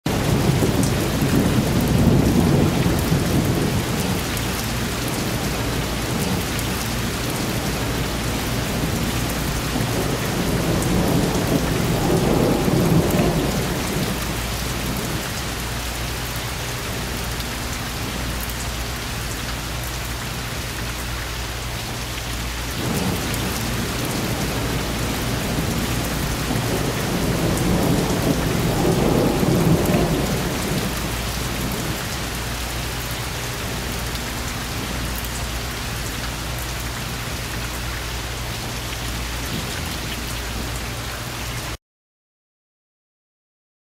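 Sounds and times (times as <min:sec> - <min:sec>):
thunder rumbling: 0:00.1 - 0:15.6, 0:22.8 - 0:34.1
rain hissing: 0:00.1 - 0:41.7.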